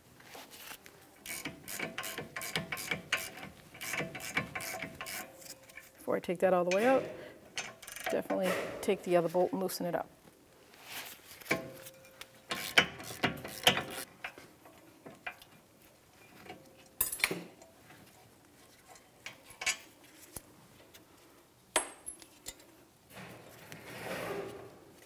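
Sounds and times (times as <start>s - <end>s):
hand ratchet clicking: 1.2s - 5.9s, 7.6s - 8.2s, 12.5s - 14.1s.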